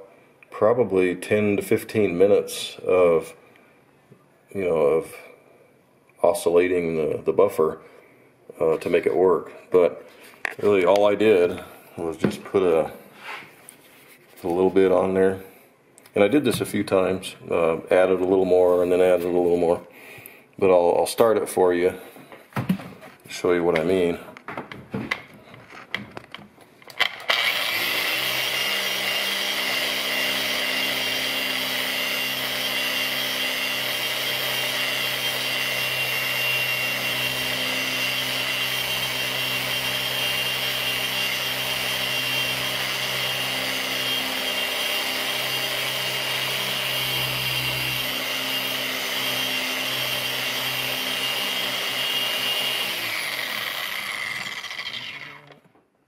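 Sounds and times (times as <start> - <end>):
car polisher motor whine: 27.3 - 37.4, 41.0 - 55.4.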